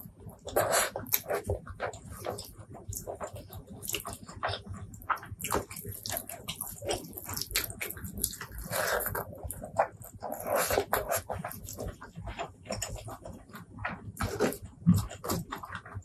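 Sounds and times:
mouth eating sounds: 0.0 - 13.4
fingers squishing rice and sauce: 0.0 - 16.0.

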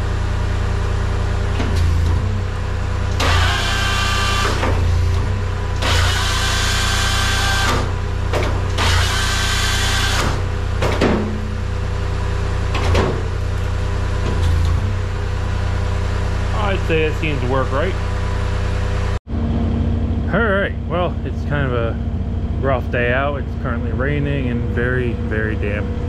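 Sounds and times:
skid steer engine running: 0.0 - 26.0
hydraulic hissing whine: 3.1 - 8.0, 8.7 - 10.6.

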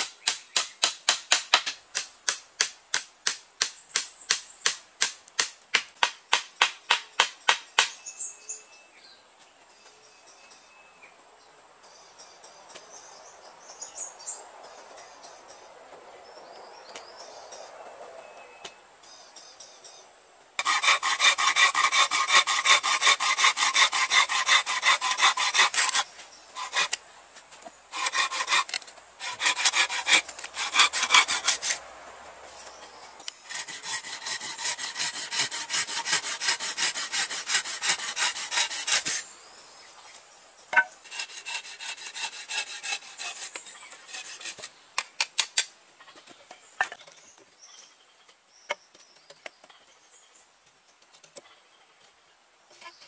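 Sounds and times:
hand saw cutting bamboo: 20.6 - 27.0, 27.9 - 31.8, 33.4 - 39.2, 40.8 - 44.7
light scraping strokes: 20.6 - 39.3, 40.8 - 44.8.

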